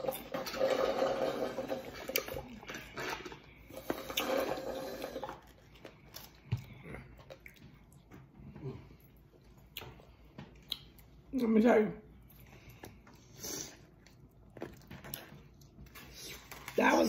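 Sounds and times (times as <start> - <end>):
slurping smoothie through straw: 0.0 - 5.6.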